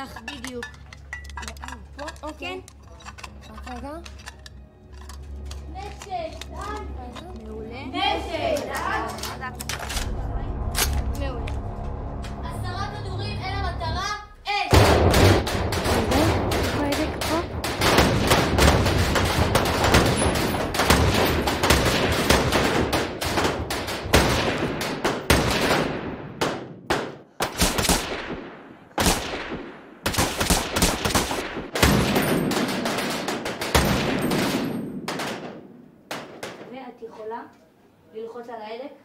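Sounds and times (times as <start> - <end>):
rifle shots echoing: 14.7 - 36.8.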